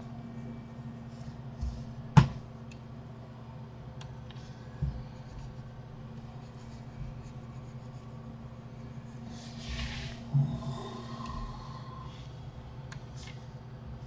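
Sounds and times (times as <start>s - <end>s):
low hum: 2.5s - 13.8s
scratchy rub: 6.4s - 10.2s.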